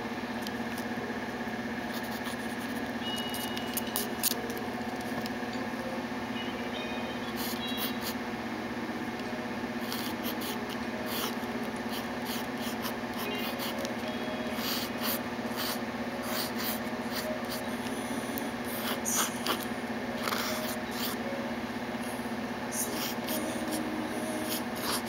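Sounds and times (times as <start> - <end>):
steady low hum: 0.0 - 25.0
pencil scratching on paper: 1.9 - 2.8, 9.8 - 13.8, 24.5 - 25.0.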